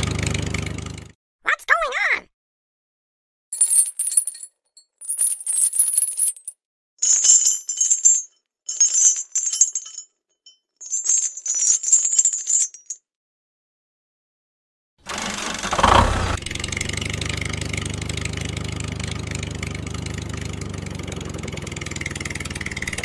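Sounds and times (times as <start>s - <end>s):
metal chain clinking: 3.6s - 13.1s, 21.6s - 23.0s.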